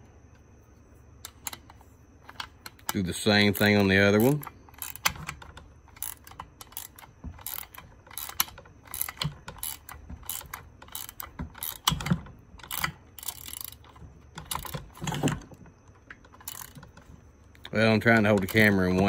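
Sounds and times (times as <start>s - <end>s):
ratcheting wrench clicking: 2.3s - 15.0s, 16.3s - 16.9s.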